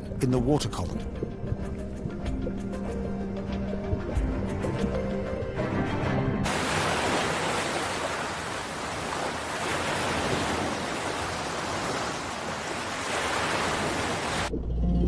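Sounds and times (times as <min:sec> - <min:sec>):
ocean waves breaking: 0:06.4 - 0:14.5.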